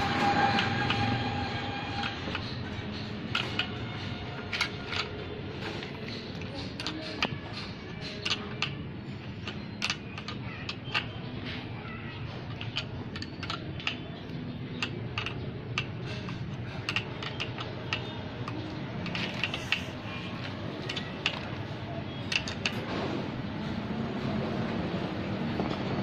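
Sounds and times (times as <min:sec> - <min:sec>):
wrench metal clicks: 0:00.0 - 0:11.6, 0:12.3 - 0:22.9.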